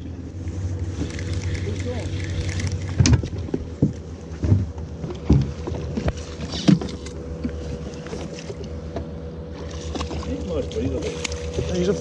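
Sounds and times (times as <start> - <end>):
boat motor humming: 0.0 - 12.0
knocks and thumps on boat: 2.9 - 11.7.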